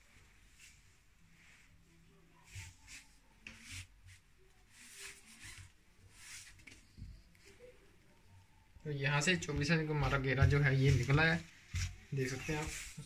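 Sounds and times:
tape measure brushing over fabric: 0.4s - 6.9s, 10.0s - 13.0s.

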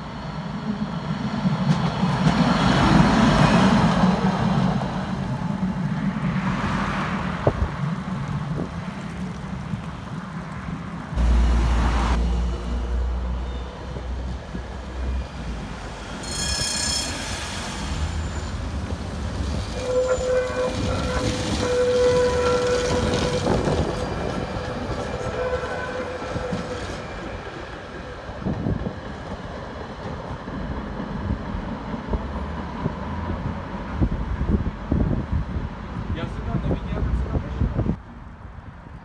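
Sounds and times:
tram whine: 0.0s - 36.1s
high ringing tone: 16.2s - 17.5s.

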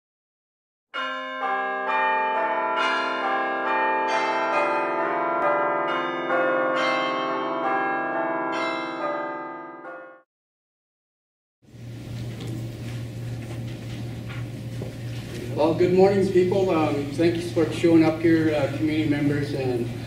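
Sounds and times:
bell-like chimes: 1.0s - 10.2s.

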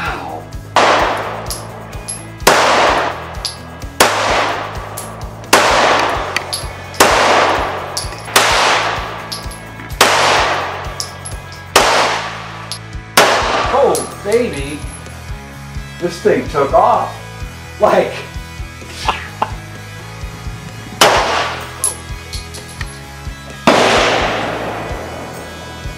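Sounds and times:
background music: 0.0s - 25.9s
pistol shots with echo: 0.7s - 14.4s, 21.0s - 22.0s, 23.6s - 25.4s.

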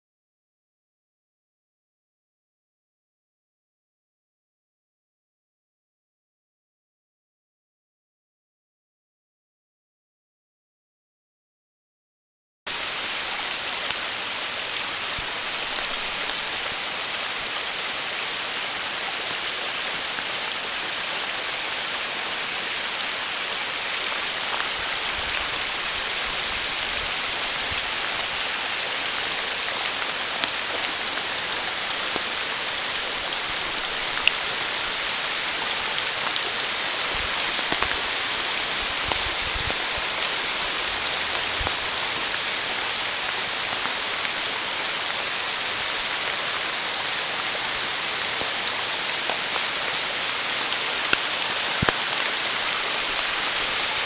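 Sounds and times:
steady rain hiss: 12.7s - 54.0s
raindrop ticks: 51.1s - 53.6s.

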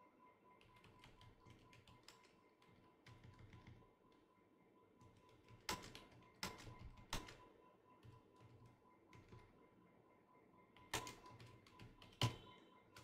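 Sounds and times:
keyboard typing: 0.6s - 3.9s, 5.0s - 7.4s, 8.0s - 9.5s, 10.8s - 13.0s
faint high-pitched tone: 12.3s - 13.0s.

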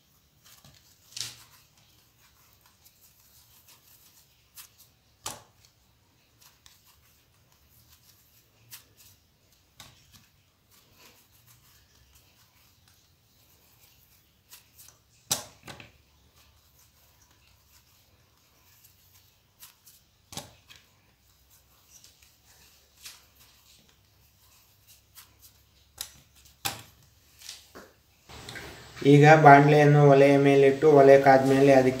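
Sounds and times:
hands rubbing dough: 0.0s - 32.0s.

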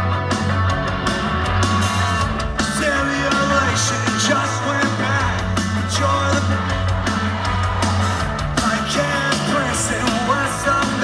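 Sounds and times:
live rock band playing: 0.0s - 11.0s
person singing: 2.6s - 11.0s.

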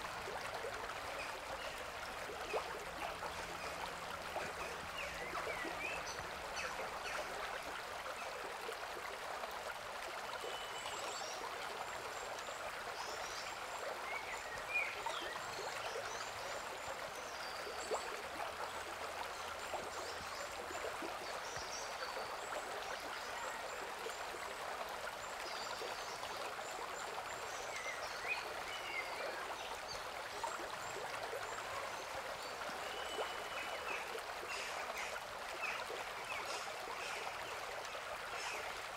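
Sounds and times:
stream babbling over stones: 0.0s - 38.9s.

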